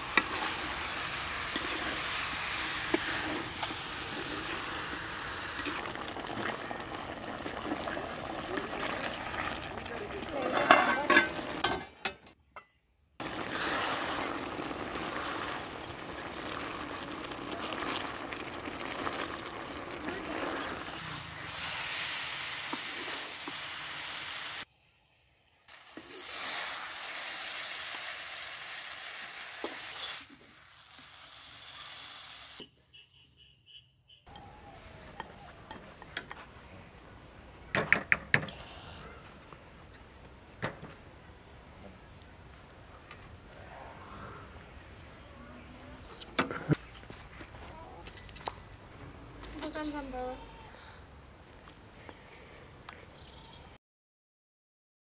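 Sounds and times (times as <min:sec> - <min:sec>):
wooden spatula scraping a pot: 0:00.0 - 0:05.0, 0:13.2 - 0:15.6
bubbling hiss of cooking: 0:00.0 - 0:11.9, 0:13.2 - 0:32.6.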